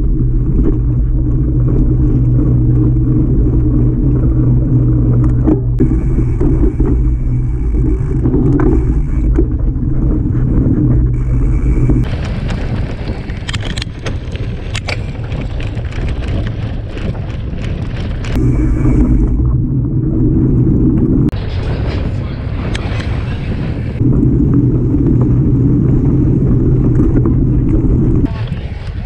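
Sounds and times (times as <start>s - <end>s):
bike rattling over rough trail: 0.0s - 29.0s
wind buffeting microphone: 0.0s - 29.0s.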